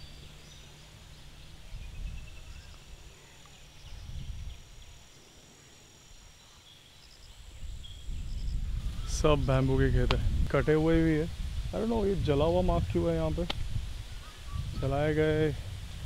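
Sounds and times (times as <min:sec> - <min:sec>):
wind rumble on microphone: 0:00.0 - 0:05.0, 0:07.3 - 0:16.0
faint bird chirps: 0:00.0 - 0:09.6, 0:14.0 - 0:15.5
high insect buzz: 0:00.0 - 0:16.0.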